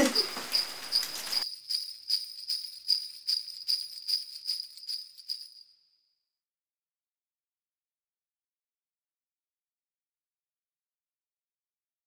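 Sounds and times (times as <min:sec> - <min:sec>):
jingle bells shaken in rhythm: 0:00.0 - 0:05.8.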